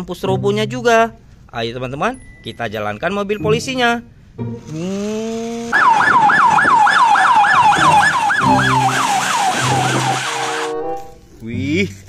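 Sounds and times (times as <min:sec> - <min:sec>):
police siren yelping: 0:05.7 - 0:11.2.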